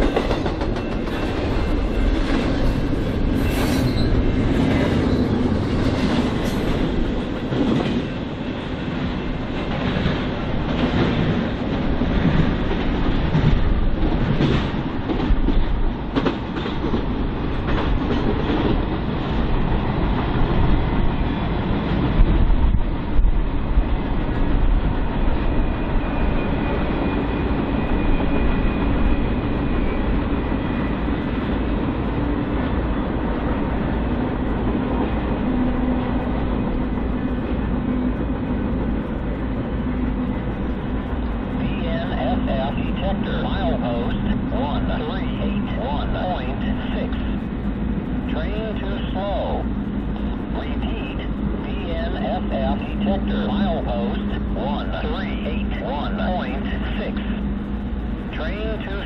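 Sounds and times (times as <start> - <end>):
train cars clattering over rail joints: 0.0 - 8.3.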